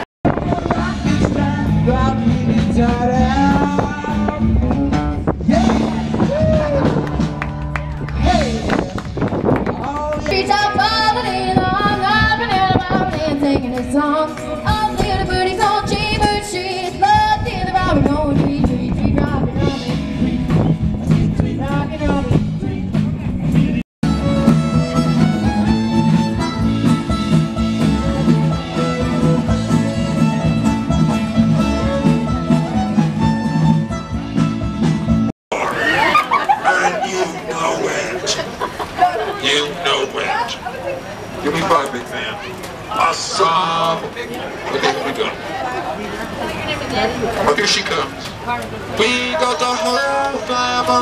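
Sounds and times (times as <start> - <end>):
live country band music: 0.0 - 39.4
fiddle: 24.0 - 34.4.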